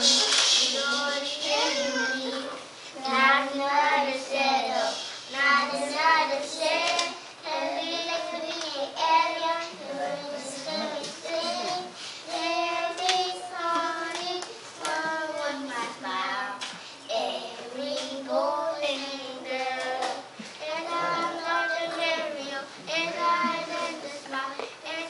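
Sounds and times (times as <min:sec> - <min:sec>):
young children singing: 0:00.0 - 0:25.0.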